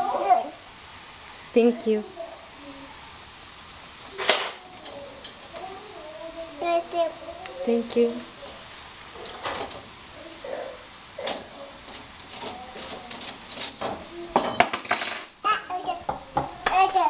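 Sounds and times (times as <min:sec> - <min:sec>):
metal cutlery clinking: 0:03.8 - 0:05.8, 0:09.2 - 0:15.4.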